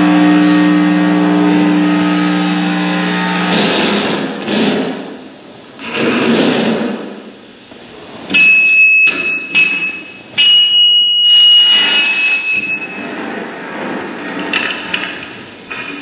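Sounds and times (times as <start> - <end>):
loud high steady tone: 0.0 - 6.0, 8.3 - 13.8
rushing noise: 0.0 - 8.3
harsh electronic noise: 0.0 - 16.0.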